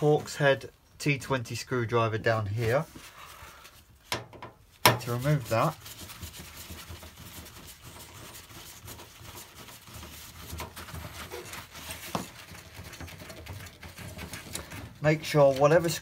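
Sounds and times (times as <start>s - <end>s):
screwdriver scratchy rubbing: 5.0s - 16.0s.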